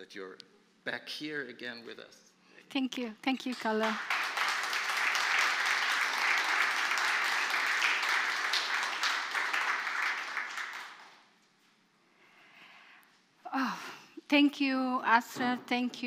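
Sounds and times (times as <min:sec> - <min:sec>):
audience applauding: 0:03.5 - 0:11.3.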